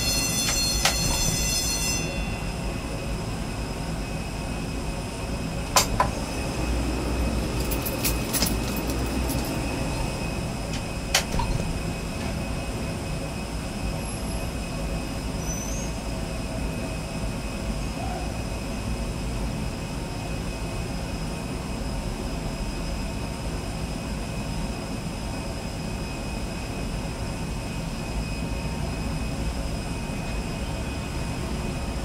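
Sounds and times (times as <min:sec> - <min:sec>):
higher whining tones: 0:00.0 - 0:11.1
jet turbine whine: 0:00.0 - 0:32.0.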